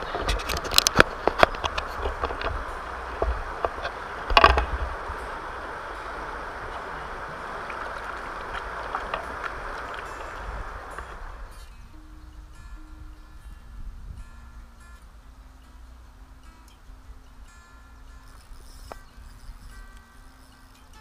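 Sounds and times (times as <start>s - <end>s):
river water rushing past stones: 0.0s - 11.8s
wind rumble on microphone: 0.0s - 21.0s.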